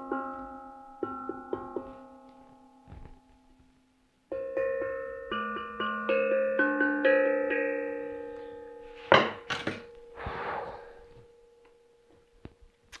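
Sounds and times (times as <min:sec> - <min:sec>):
steel tongue drum ringing notes: 0:00.0 - 0:03.0, 0:04.3 - 0:12.2.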